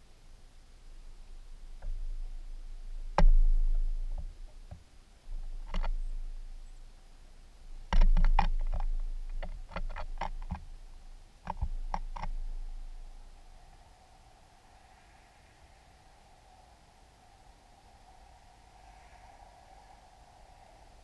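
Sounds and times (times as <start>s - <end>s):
birds tapping and knocking on feeder: 3.2s - 4.8s, 5.6s - 6.1s, 7.9s - 10.7s, 11.4s - 12.5s.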